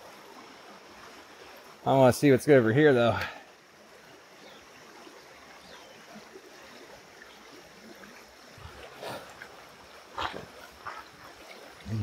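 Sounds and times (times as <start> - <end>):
creek running over rocks: 0.0 - 12.0.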